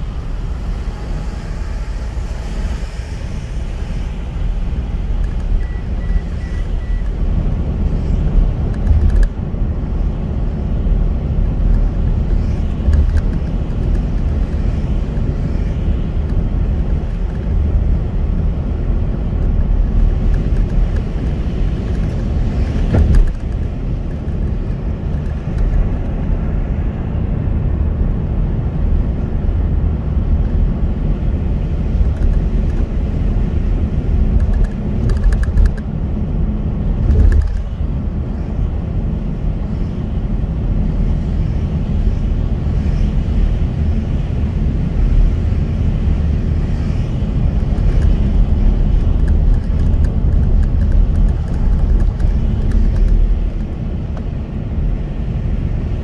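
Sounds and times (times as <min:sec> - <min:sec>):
tyres hissing on wet road: 0:00.0 - 0:05.1
car driving rumble: 0:00.0 - 0:56.0.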